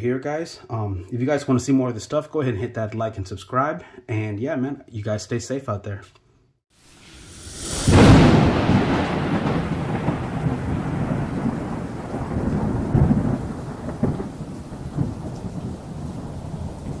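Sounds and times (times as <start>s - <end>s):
deep thunder-like rumble: 7.2s - 17.0s.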